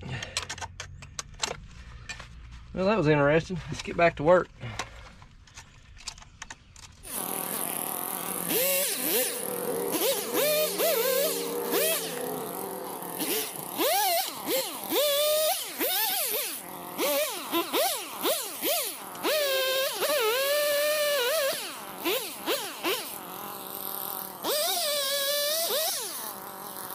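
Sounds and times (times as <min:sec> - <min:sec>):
chainsaw engine revving: 0:07.0 - 0:26.9.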